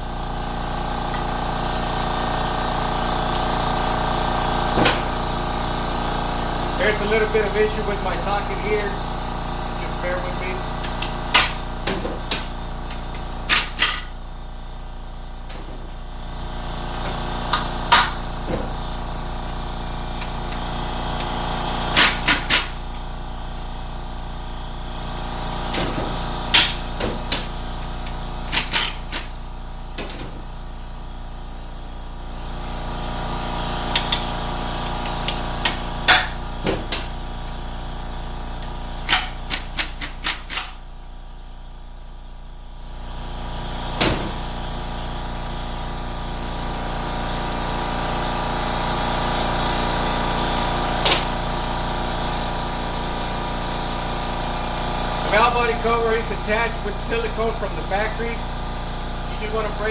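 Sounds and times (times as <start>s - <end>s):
steady hum: 48.2s - 59.9s.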